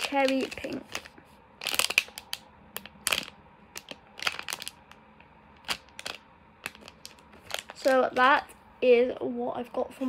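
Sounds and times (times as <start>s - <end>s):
plastic packaging crinkling: 0.0s - 8.4s.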